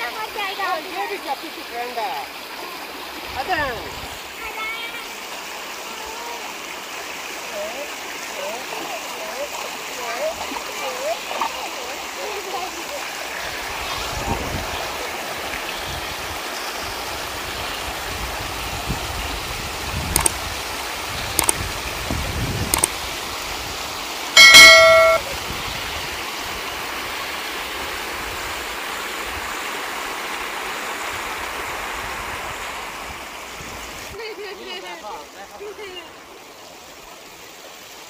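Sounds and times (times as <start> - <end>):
stream running over rocks: 0.0 - 38.0
sharp clicks: 20.1 - 20.4, 21.4 - 21.6, 22.7 - 22.9
multi-pitch chime sound effect: 24.4 - 25.2.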